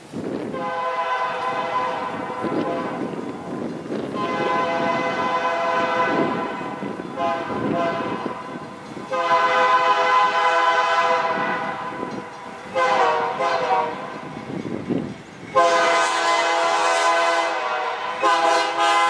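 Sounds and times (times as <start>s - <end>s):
train rumbling: 0.0s - 19.0s
locomotive air horn blasts: 0.5s - 14.3s, 15.5s - 19.0s.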